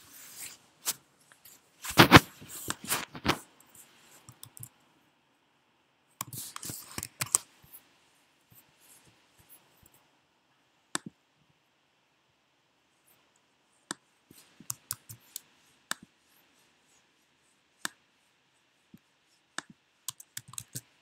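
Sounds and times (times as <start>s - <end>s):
keyboard typing clicks: 4.3s - 4.7s, 19.6s - 20.8s.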